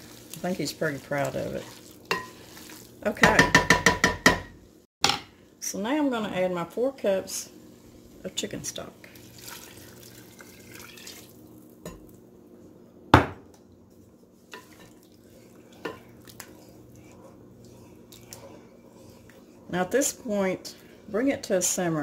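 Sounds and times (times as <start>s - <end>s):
liquid sloshing in pot: 0.0s - 3.0s, 9.0s - 11.6s, 14.0s - 21.1s
spoon knocking against pot: 3.2s - 5.2s.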